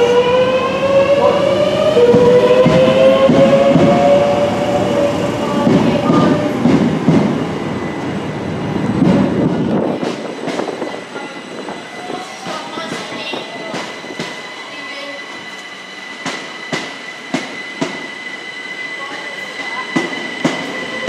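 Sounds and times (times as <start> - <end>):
train moving slowly: 0.0 - 21.0.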